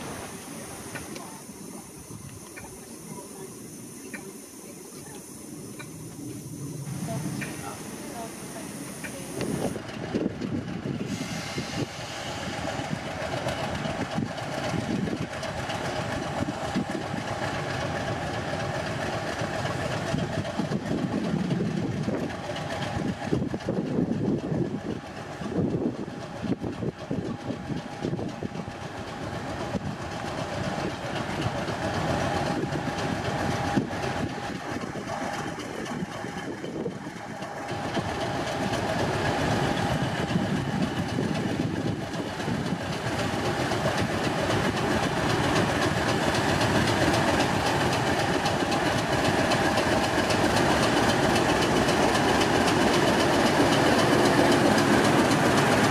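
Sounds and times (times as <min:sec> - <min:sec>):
diesel locomotive engine: 0:00.0 - 0:55.9.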